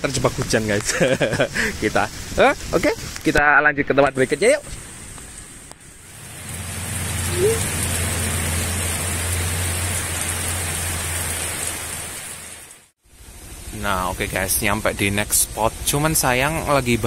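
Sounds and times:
heavy rain falling: 0:00.1 - 0:03.2, 0:04.2 - 0:17.0
short rising chirp: 0:07.2 - 0:07.9.

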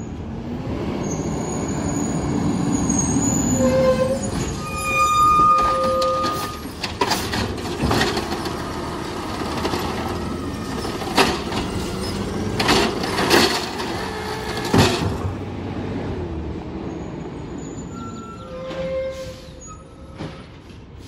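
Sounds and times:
garbage truck engine and hydraulics: 0:00.0 - 0:21.0
trash cart clanking: 0:03.6 - 0:15.5.

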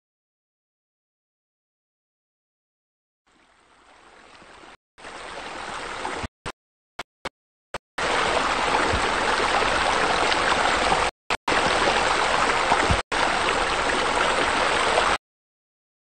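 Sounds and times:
running water rushing: 0:03.3 - 0:06.6, 0:08.0 - 0:15.2.

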